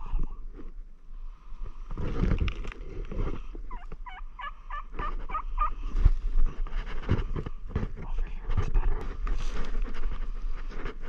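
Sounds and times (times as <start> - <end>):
turkey call yelps: 3.7 - 5.8.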